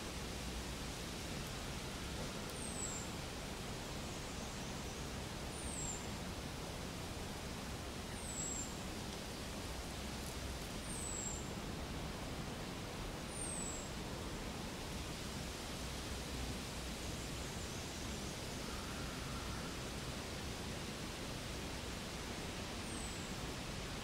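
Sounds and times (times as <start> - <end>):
forest ambience hiss: 0.0 - 24.0.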